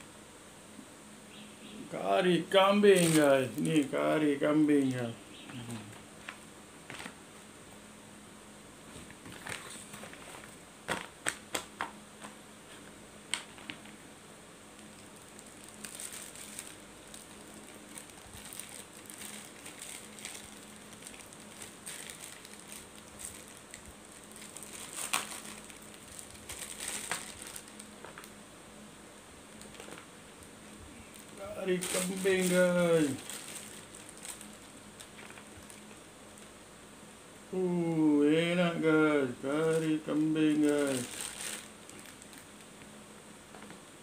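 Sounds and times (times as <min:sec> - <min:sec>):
plastic bag crinkling: 0:02.6 - 0:04.0, 0:09.1 - 0:11.1, 0:14.8 - 0:28.4, 0:29.5 - 0:30.1, 0:31.0 - 0:36.5, 0:39.5 - 0:42.8
crackers cracking: 0:02.7 - 0:04.0, 0:14.7 - 0:28.4, 0:29.5 - 0:36.6, 0:39.5 - 0:43.0.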